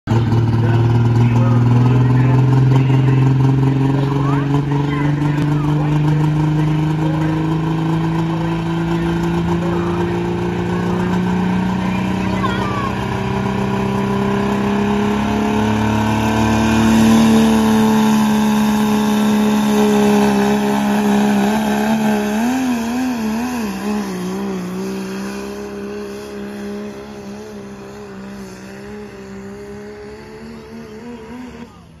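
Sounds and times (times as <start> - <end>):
pulling tractor engine high revs: 0.1 - 32.0.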